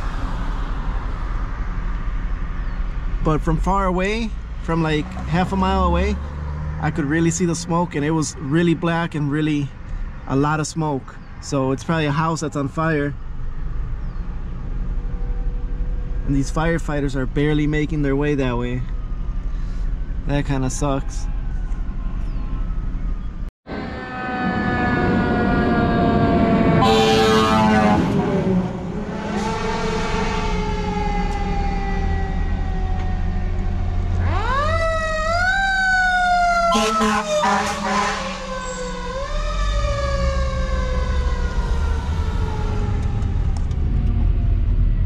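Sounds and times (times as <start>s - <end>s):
car road and engine noise: 0.0s - 45.0s
fire engine siren wailing: 23.7s - 45.0s
short horn blasts: 26.8s - 28.6s, 36.7s - 38.4s.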